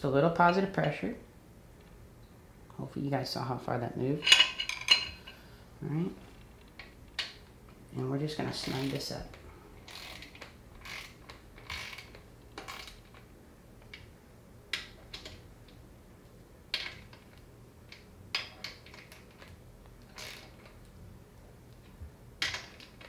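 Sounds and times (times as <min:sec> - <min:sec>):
ratchet wrench clicking: 0:09.9 - 0:13.2, 0:20.1 - 0:20.6.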